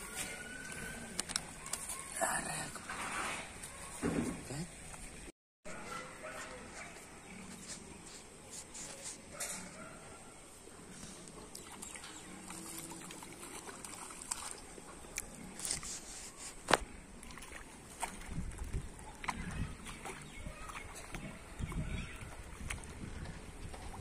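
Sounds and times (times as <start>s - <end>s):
fish splashing: 11.5s - 16.4s.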